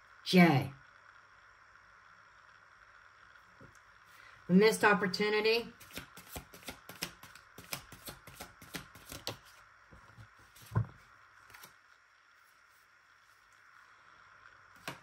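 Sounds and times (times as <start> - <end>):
cards being shuffled: 5.8 - 11.9, 14.8 - 15.0.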